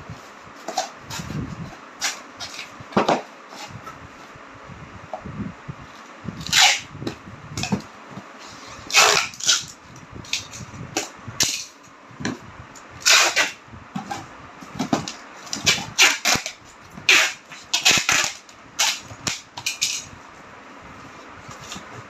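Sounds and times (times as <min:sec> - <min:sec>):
packing tape ripping: 0:06.4 - 0:06.9, 0:08.9 - 0:10.6, 0:13.0 - 0:13.6, 0:15.5 - 0:20.1.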